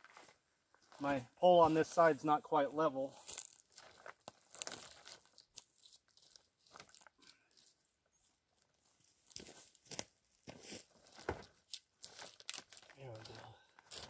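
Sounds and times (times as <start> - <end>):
wooden pole crunching and knocking: 9.3 - 13.3.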